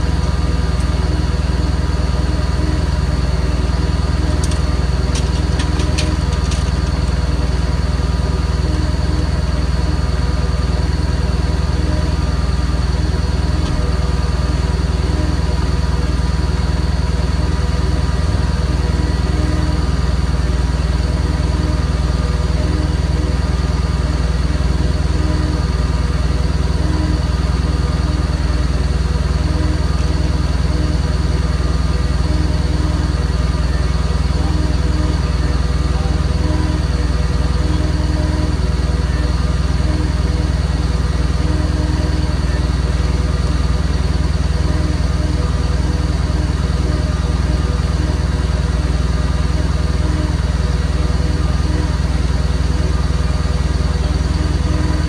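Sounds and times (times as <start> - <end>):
truck engine idling: 0.0 - 55.0.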